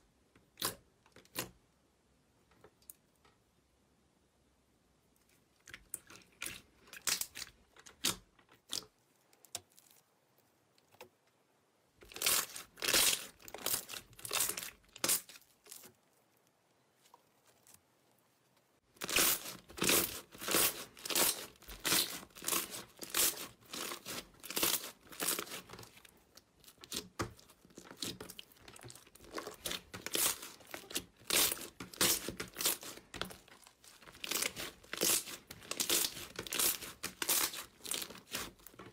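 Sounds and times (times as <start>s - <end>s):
crunchy slime crackling: 12.0s - 17.9s, 18.9s - 38.9s.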